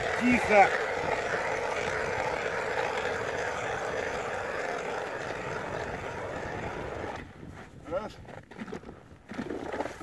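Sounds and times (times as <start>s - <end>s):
electric ice auger drilling: 0.0s - 7.3s
grinding whir: 0.0s - 7.3s.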